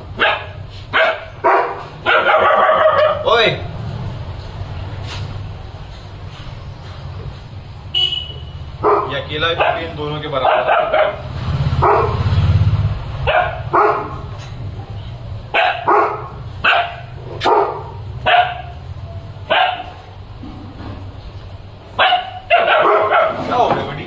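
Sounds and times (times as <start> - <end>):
dog barking: 0.2 - 3.3, 8.8 - 12.3, 13.2 - 14.3, 15.5 - 18.8, 19.4 - 20.0, 22.0 - 23.5.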